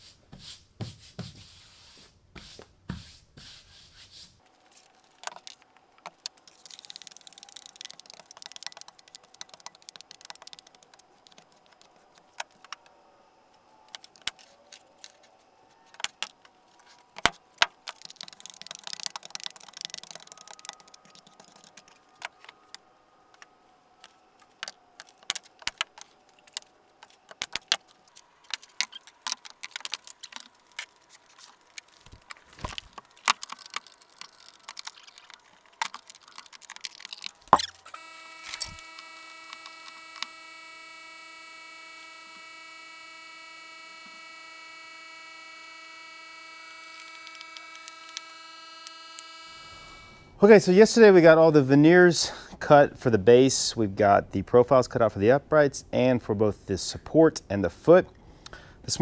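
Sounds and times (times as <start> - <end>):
wooden parts clicking and knocking: 5.1 - 12.8, 17.2 - 22.8, 24.4 - 37.9.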